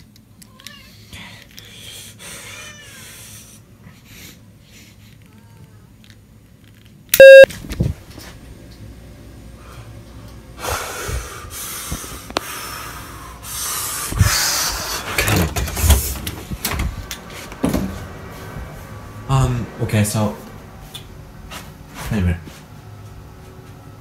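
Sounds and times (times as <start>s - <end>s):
loud electronic tone: 7.2s - 7.5s.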